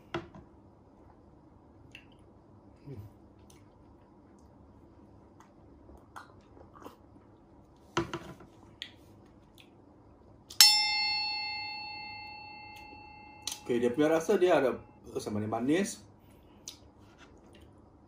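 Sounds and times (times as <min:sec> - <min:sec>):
sipping and swallowing: 0:05.8 - 0:07.2
bell-like ding: 0:10.6 - 0:15.0.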